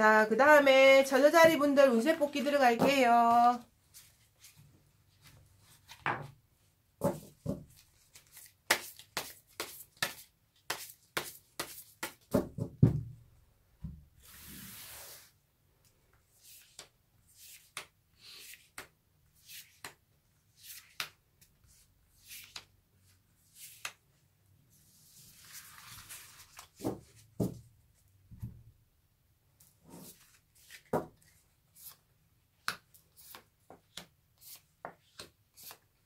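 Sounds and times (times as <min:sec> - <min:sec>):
cards sliding on cloth: 0:14.2 - 0:15.4
soft taps and clicks of cards: 0:32.6 - 0:34.1.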